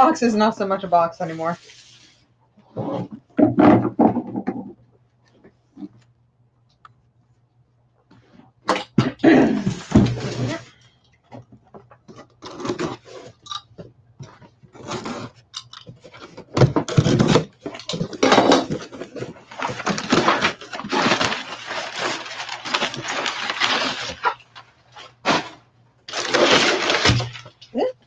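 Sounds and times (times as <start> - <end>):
packing paper rustling and crackling: 16.1 - 27.7.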